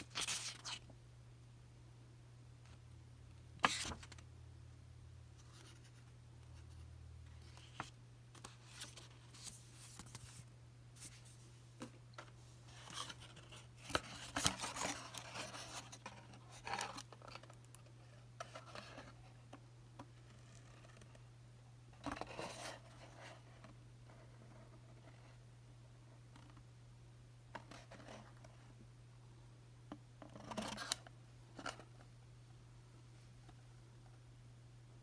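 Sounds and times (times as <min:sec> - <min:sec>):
paper and cardboard rustling: 0:07.4 - 0:17.6.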